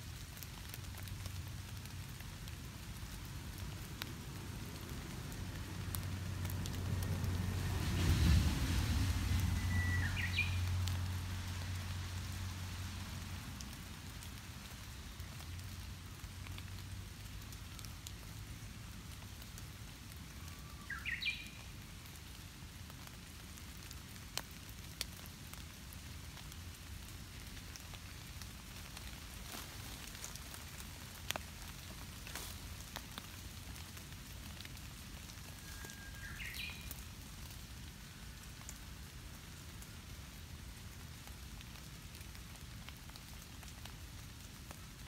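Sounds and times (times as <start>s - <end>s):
rain pattering on leaves: 0.0s - 45.0s
water drip ticks: 26.3s - 35.8s.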